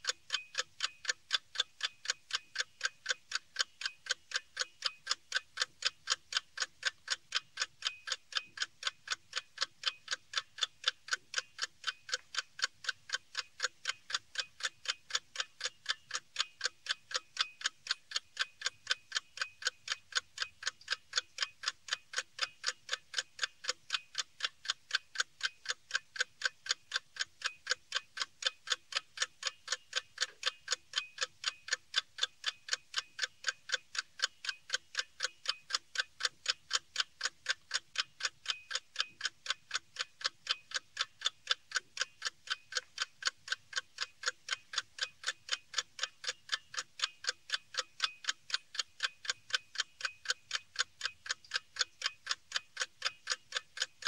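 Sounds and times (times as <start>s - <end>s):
clock ticking: 0.0s - 54.0s.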